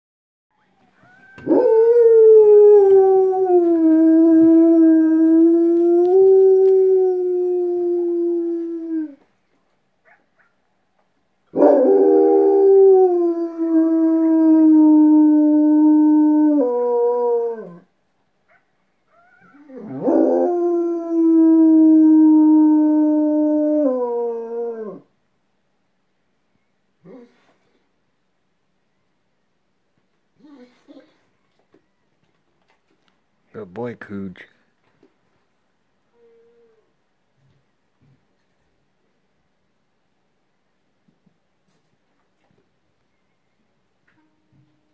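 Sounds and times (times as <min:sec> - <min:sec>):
dog howling: 0:01.0 - 0:09.2, 0:19.1 - 0:25.0.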